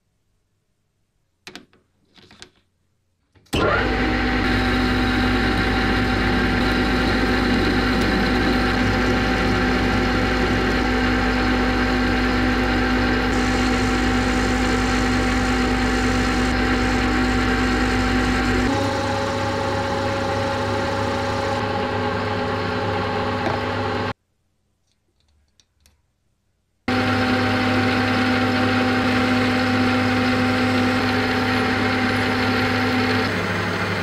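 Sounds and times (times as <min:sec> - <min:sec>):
electric motor humming: 0:03.6 - 0:24.1.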